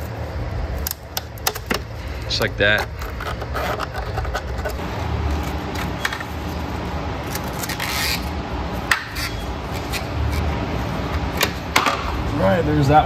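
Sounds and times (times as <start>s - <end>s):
steady low hum: 0.0s - 13.0s
tools clicking and scraping plastic: 2.7s - 4.8s.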